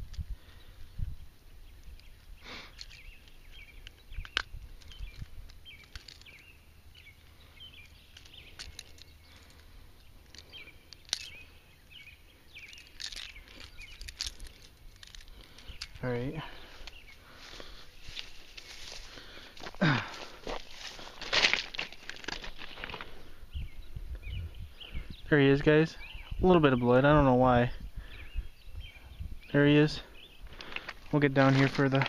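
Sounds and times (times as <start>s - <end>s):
small birds chirping: 0.0s - 32.0s.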